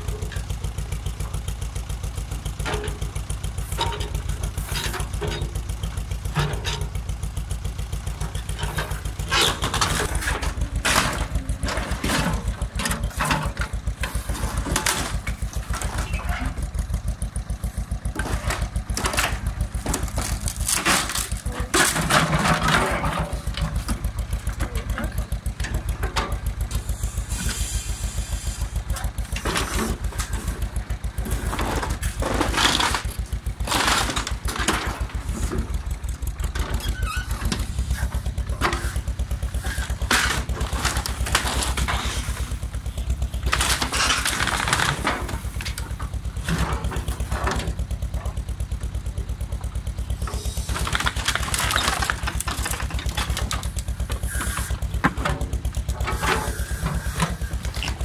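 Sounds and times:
tractor diesel engine chugging: 0:00.0 - 0:58.0
timber boards cracking and crashing: 0:18.4 - 0:22.8, 0:31.9 - 0:35.2, 0:43.4 - 0:45.6, 0:50.7 - 0:53.9.

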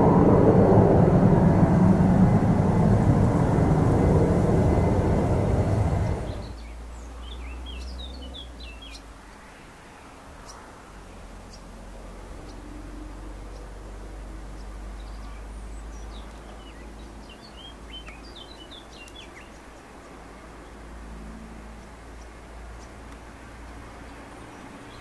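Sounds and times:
faint low rumble: 0:00.0 - 0:06.8
small songbirds chirping: 0:04.3 - 0:09.2, 0:09.8 - 0:11.8, 0:12.4 - 0:20.9, 0:21.7 - 0:23.3, 0:23.9 - 0:25.0.

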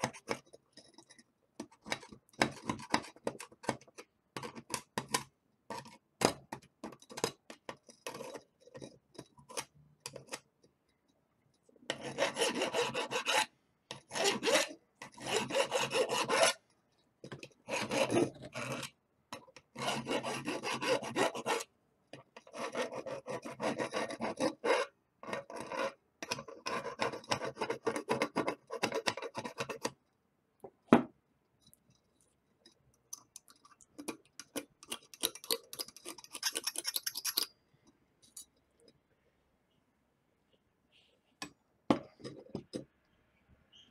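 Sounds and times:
file rasping on metal pipe: 0:11.9 - 0:13.5, 0:14.1 - 0:16.6, 0:17.7 - 0:18.8, 0:19.8 - 0:21.7.

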